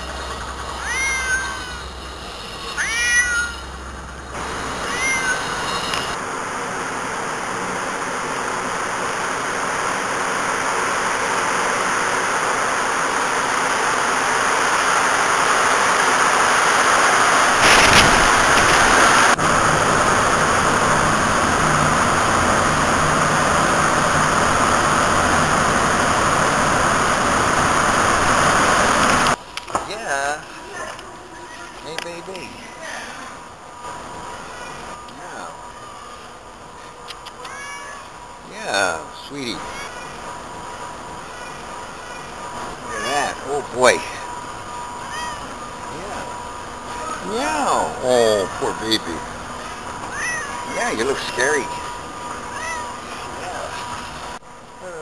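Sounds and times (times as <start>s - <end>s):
subway train rushing: 0.0s - 29.4s, 38.1s - 54.9s
cat meowing: 0.8s - 1.8s, 2.7s - 3.6s, 4.6s - 6.2s, 37.2s - 38.2s, 45.0s - 45.7s, 49.6s - 51.0s, 52.5s - 53.4s.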